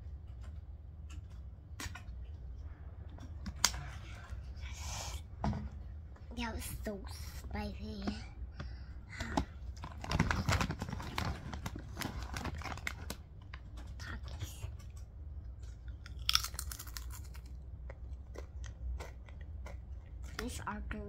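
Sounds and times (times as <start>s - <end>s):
child crunching a cracker: 9.8s - 13.2s, 15.9s - 17.6s, 18.2s - 20.4s.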